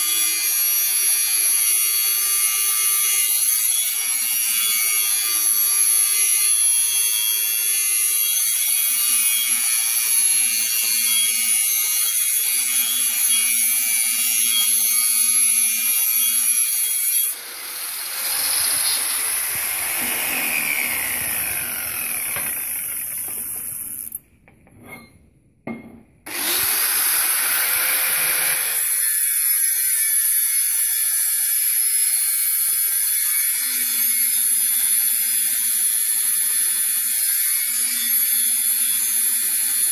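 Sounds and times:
angle grinder grinding metal pipe: 0.0 - 25.1, 26.3 - 31.6.

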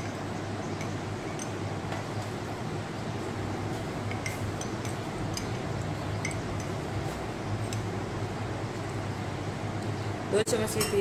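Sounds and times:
steady low hum: 0.0 - 11.0
spoon clinking on ceramic mug: 10.7 - 11.0.

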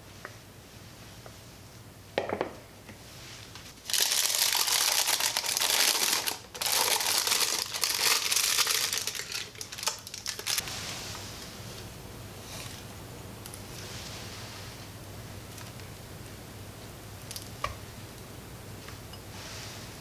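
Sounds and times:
plastic piping bag crinkling: 3.8 - 10.6.

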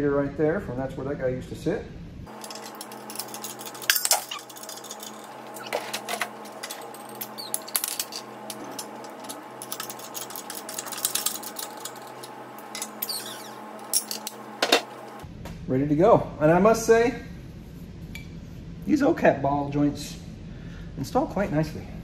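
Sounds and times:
metallic clicks and clinks: 2.3 - 15.2.

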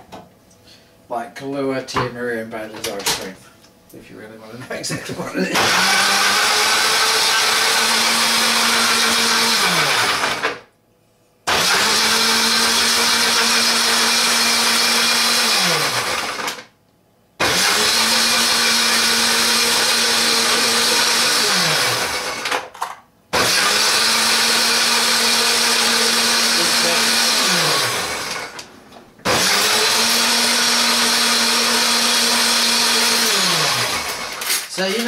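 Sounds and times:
blender motor blending: 5.6 - 10.7, 11.5 - 16.7, 17.4 - 22.7, 23.4 - 35.0.

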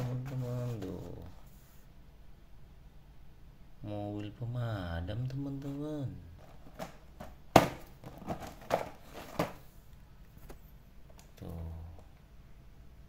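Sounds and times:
cardboard box knocking: 6.7 - 9.6.

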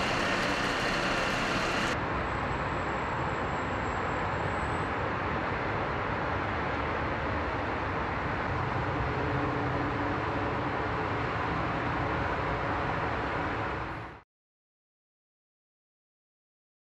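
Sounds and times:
distant road traffic hum: 0.0 - 14.2.

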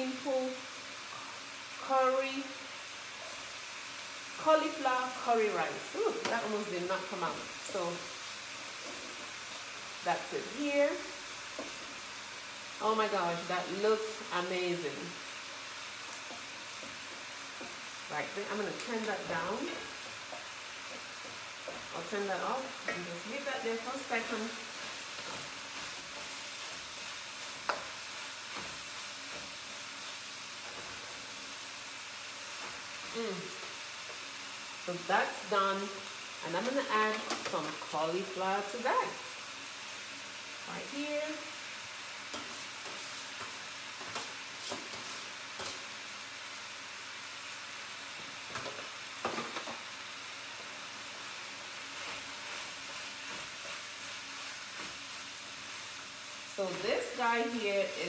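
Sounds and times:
food sizzling in a frying pan: 0.0 - 58.0
spoon scraping a pan: 42.2 - 45.9.

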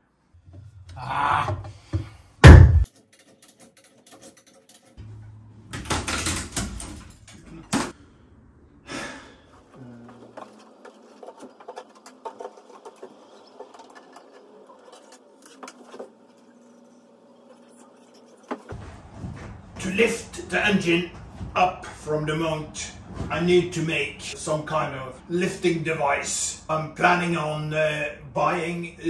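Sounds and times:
scraping and knocking: 9.6 - 16.5.

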